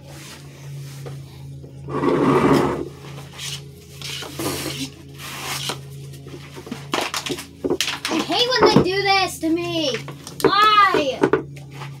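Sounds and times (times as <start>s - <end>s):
plastic bag tearing and crinkling: 6.9s - 8.2s.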